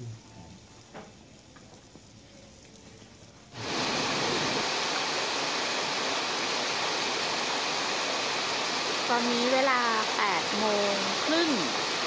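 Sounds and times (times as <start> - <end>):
river rushing over rocks: 3.6 - 9.1.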